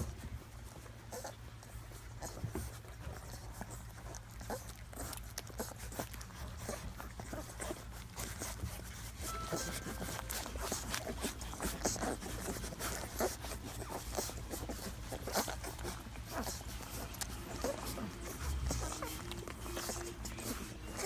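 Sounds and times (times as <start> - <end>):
puppies suckling: 0.0 - 21.0.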